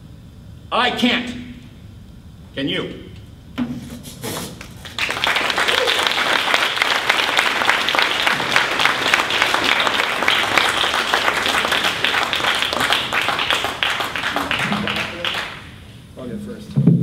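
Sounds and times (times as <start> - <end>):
audience applauding: 4.6 - 15.9.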